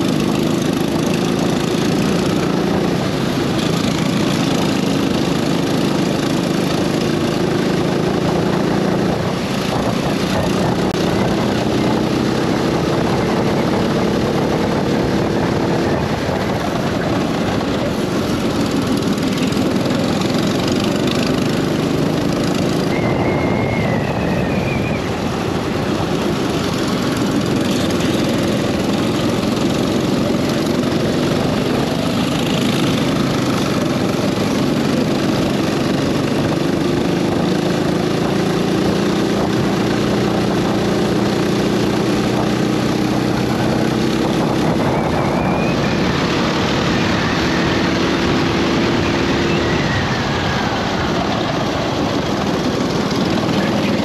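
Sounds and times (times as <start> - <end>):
go-kart engine running: 0.0 - 54.0
wind noise on microphone: 0.0 - 54.0
high squeals: 22.7 - 25.6, 44.6 - 52.2.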